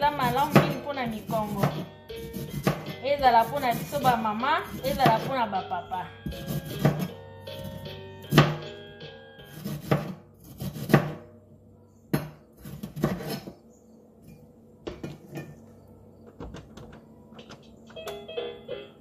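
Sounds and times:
knife chopping on cutting board: 0.3 - 4.1, 6.3 - 8.6, 9.5 - 11.2, 12.1 - 13.5.

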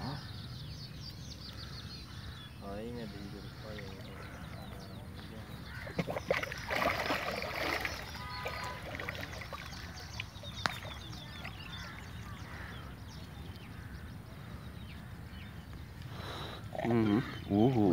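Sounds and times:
water splashing: 3.5 - 12.5.

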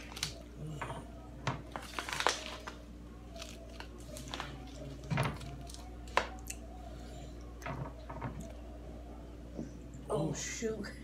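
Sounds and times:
aluminium foil pan crinkling: 0.0 - 0.4, 1.5 - 6.4
chips crushing: 0.0 - 0.5, 1.5 - 6.6.

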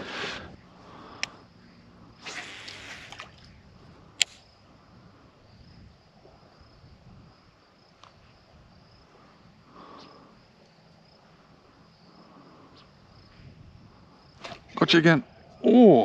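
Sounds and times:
insects chirring: 0.0 - 16.0
sharp click: 4.2 - 4.4.

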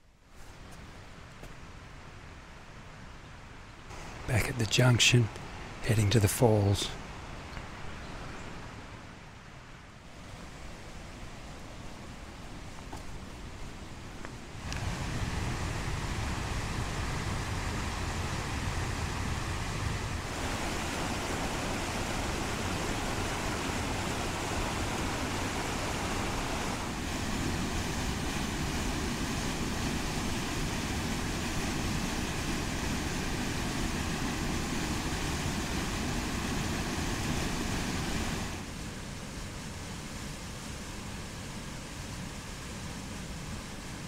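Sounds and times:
water rushing over rocks: 10.2 - 40.8.

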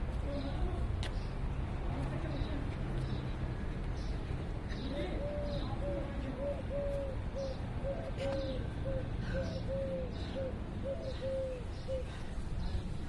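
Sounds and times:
dove cooing: 4.8 - 12.2.

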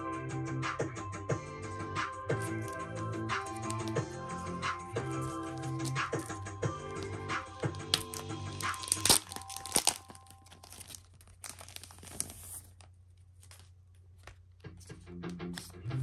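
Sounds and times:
background music: 0.0 - 10.9, 14.7 - 16.0
packaging tearing and crinkling: 3.4 - 4.0, 5.0 - 14.5.

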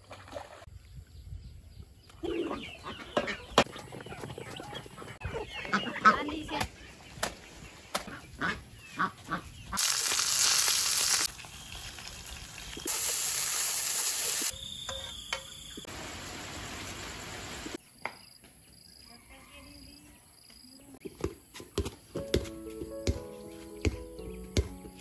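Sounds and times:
ducks quacking: 2.2 - 6.8, 8.0 - 9.8.

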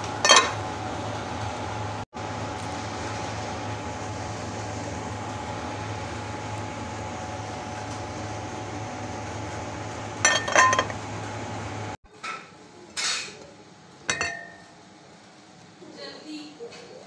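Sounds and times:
steady hum: 0.0 - 12.0
cookware clinking: 0.2 - 0.6, 10.3 - 11.0, 14.1 - 14.7.

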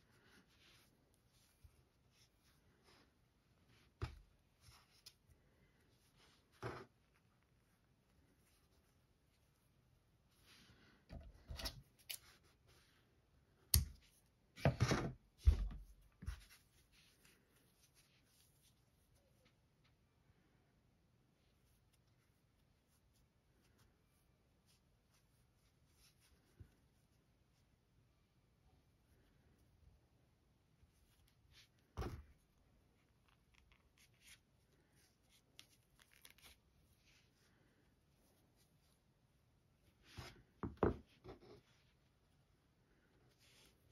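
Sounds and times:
yarn and crochet hook rustling: 0.0 - 13.1.

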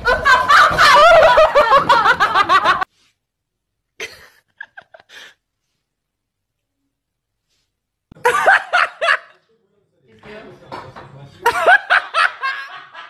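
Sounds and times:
person giggling: 4.0 - 5.4.

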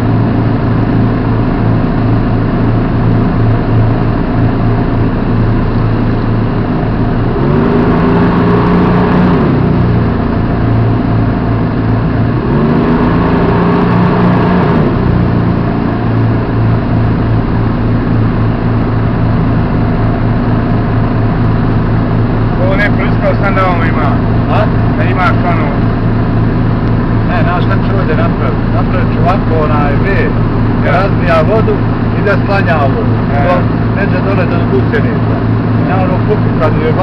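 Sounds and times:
tracked vehicle engine revving: 0.0 - 37.0.

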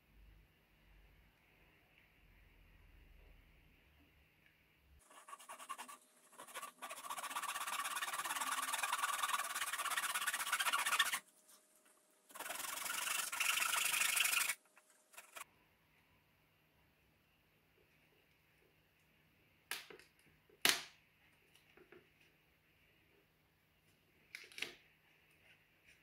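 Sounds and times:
knife sawing through cardboard: 5.0 - 11.2, 12.3 - 14.6, 15.2 - 15.4.

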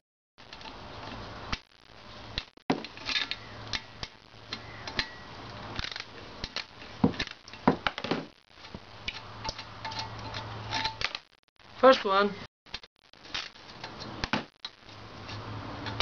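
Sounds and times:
steel tools clinking: 9.0 - 11.2.

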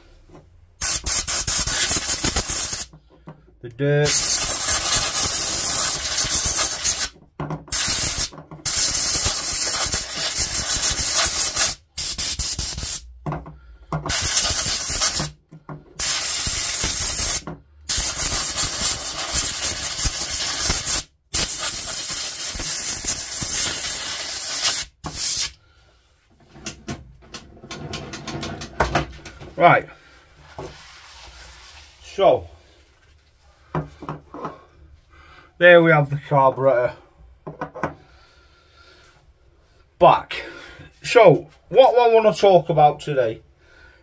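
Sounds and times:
pressurised spray hissing: 0.8 - 2.9, 4.1 - 7.1, 7.7 - 13.0, 14.1 - 15.3, 16.0 - 25.6.

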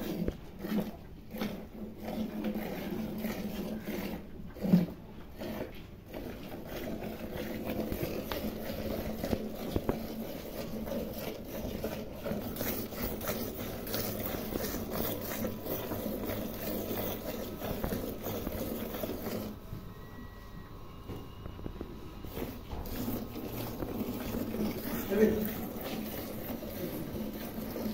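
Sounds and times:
milk squirting into pail: 0.0 - 19.6, 22.2 - 27.9.

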